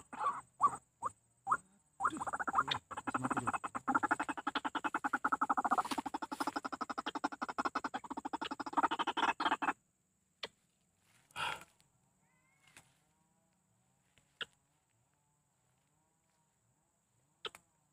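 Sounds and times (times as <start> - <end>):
bird pulsed calls: 0.0 - 9.8.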